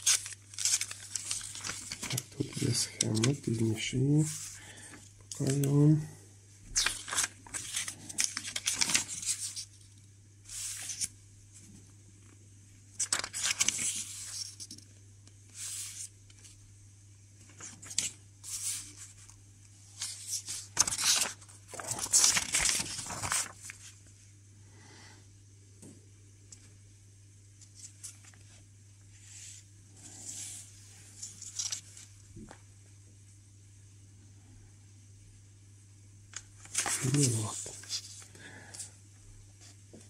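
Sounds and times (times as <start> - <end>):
paper pages rustling: 0.0 - 5.8, 6.7 - 9.8, 10.5 - 11.2, 13.0 - 14.9, 15.5 - 16.6, 17.5 - 24.0, 27.6 - 28.6, 29.3 - 32.6, 36.3 - 38.9.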